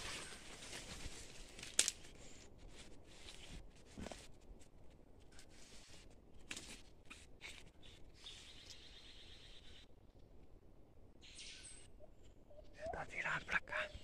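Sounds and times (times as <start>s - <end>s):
footsteps in dry leaves: 0.0s - 3.4s.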